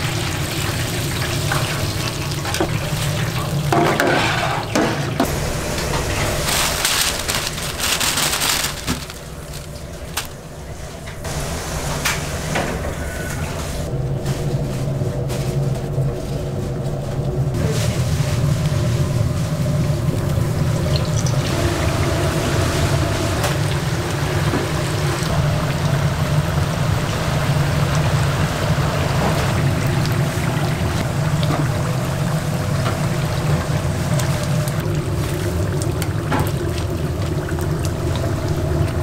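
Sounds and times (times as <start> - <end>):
low hum: 5.2 - 36.1
hiss of running liquid: 11.2 - 13.9.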